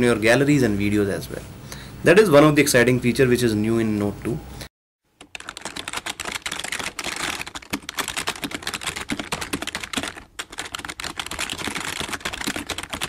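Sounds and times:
rapid continuous clicking: 0:05.2 - 0:13.0.

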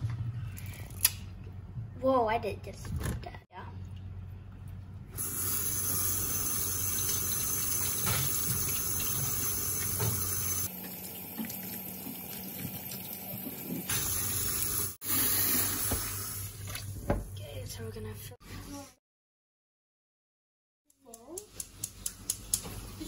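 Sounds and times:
tap water running: 0:05.2 - 0:17.3.

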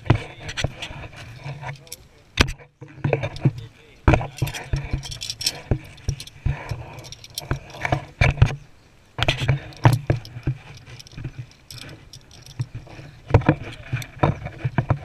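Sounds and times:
metallic clinks of harness gear: 0:01.3 - 0:02.1, 0:04.2 - 0:08.1, 0:09.6 - 0:13.1.

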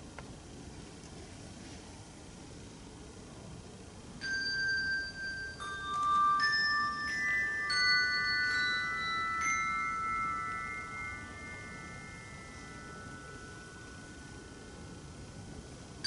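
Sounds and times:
handbells ringing: 0:04.2 - 0:16.0.

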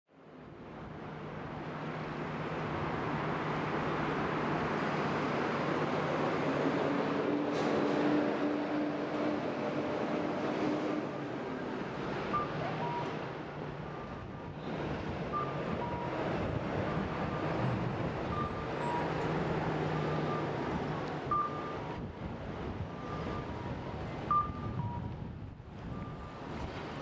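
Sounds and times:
street traffic: 0:00.1 - 0:27.0
two-tone electronic beeps: 0:12.3 - 0:13.2, 0:15.4 - 0:16.2, 0:21.3 - 0:21.8, 0:24.3 - 0:25.1.

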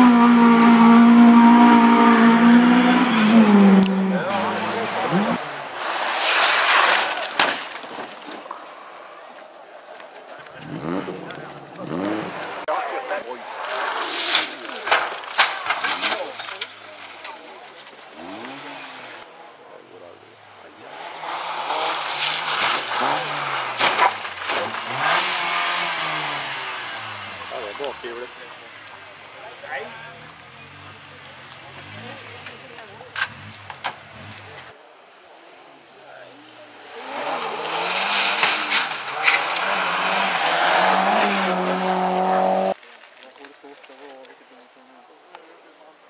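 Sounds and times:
rally car engine revving: 0:00.0 - 0:06.8, 0:10.5 - 0:12.7, 0:18.1 - 0:19.3, 0:20.4 - 0:34.8, 0:36.6 - 0:42.8
gravel spraying under tyres: 0:05.7 - 0:08.9, 0:20.9 - 0:34.6, 0:36.9 - 0:44.2
sharp cracks: 0:21.1 - 0:27.3.

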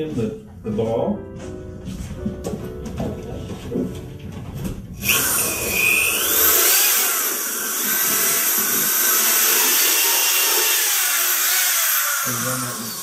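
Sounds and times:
electric drill mixing: 0:05.0 - 0:13.0.

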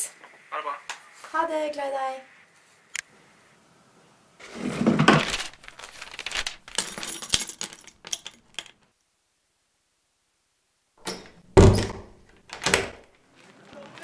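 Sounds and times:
small objects rustling and clattering: 0:04.4 - 0:08.9.

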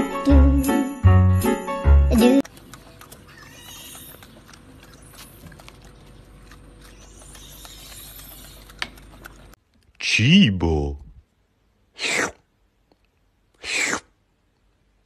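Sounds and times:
low background hum: 0:02.1 - 0:15.0
monkey chewing and mouth clicks: 0:02.4 - 0:10.0.

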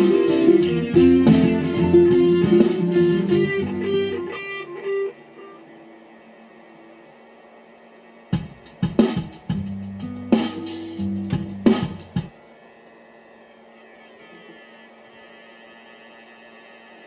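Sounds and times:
electric guitar notes and chords: 0:00.0 - 0:05.9, 0:08.4 - 0:12.3.

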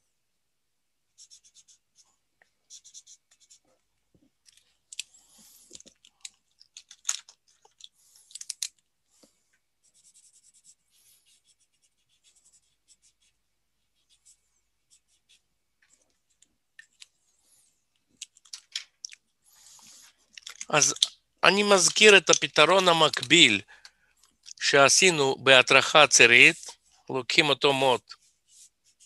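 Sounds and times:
marker strokes on paper: 0:01.2 - 0:03.7, 0:09.8 - 0:15.5, 0:27.8 - 0:29.0.

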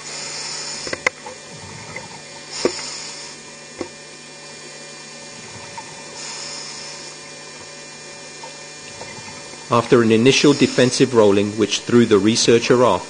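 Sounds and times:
diver breathing through regulator: 0:00.0 - 0:03.5, 0:05.3 - 0:07.4, 0:08.9 - 0:11.7
low hum: 0:00.0 - 0:13.0.

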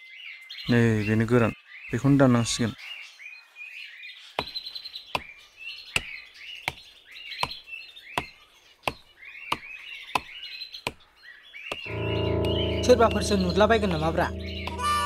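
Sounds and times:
birds chirping: 0:00.6 - 0:15.0
blade chopping tree trunk: 0:08.9 - 0:11.0.

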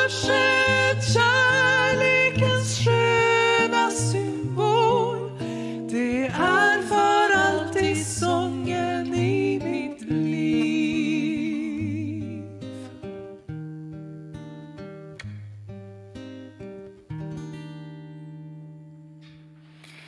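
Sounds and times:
women singing: 0:00.0 - 0:12.9
acoustic guitar: 0:00.0 - 0:20.0.

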